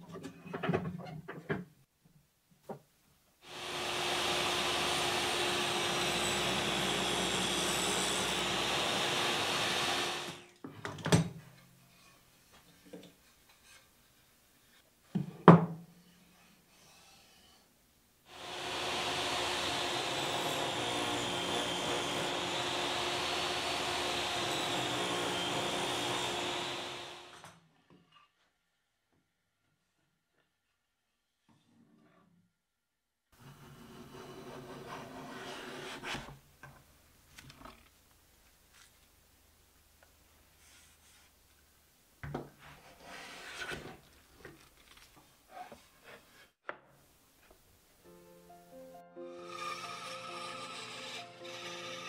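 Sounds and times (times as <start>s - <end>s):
table saw running: 3.5s - 10.4s, 18.3s - 27.4s, 49.3s - 52.0s.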